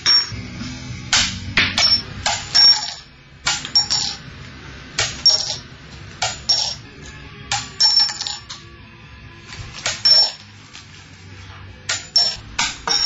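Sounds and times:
cash register rings: 1.8 - 3.0, 3.6 - 4.2, 5.2 - 5.7, 6.3 - 6.9, 7.8 - 8.5, 9.9 - 10.5, 12.0 - 13.0
coins clinking: 1.8 - 4.2, 5.2 - 5.6, 6.3 - 6.9, 7.8 - 8.5, 9.9 - 10.6, 12.0 - 13.0.

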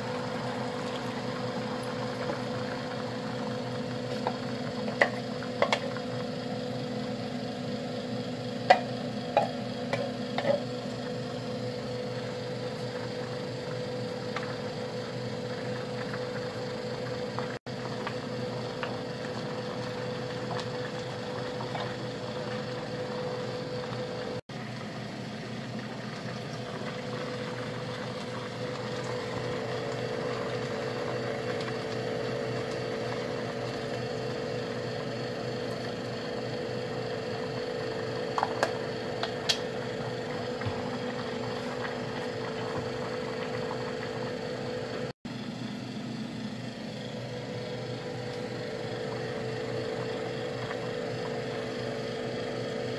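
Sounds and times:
steady mechanical hum: 0.0 - 52.9.

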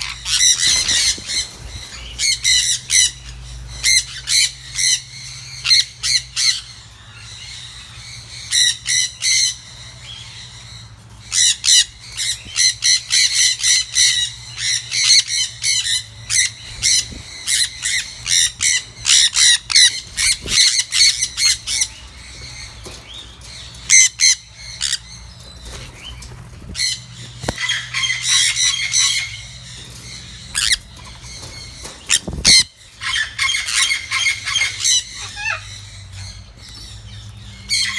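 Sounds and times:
wings fluttering: 0.0 - 4.0, 16.3 - 23.9, 24.8 - 34.7
parrots screeching: 0.0 - 7.2, 11.3 - 22.9, 23.6 - 26.1, 26.7 - 36.5.

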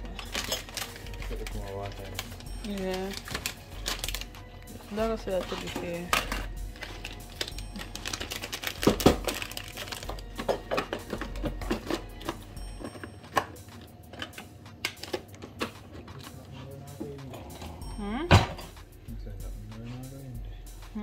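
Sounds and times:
jars and bottles clinking in a drawer: 9.2 - 16.2.

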